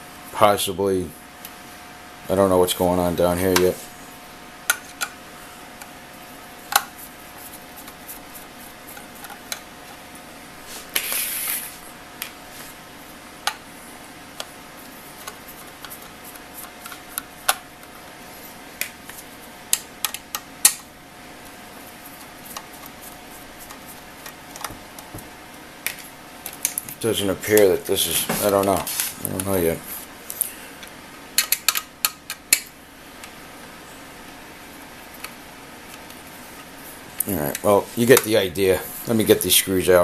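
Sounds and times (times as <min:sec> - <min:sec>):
short scraping rub: 0:10.6 - 0:11.8.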